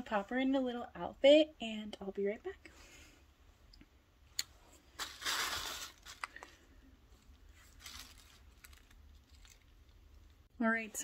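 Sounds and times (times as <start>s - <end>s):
handling rustle: 4.9s - 10.4s.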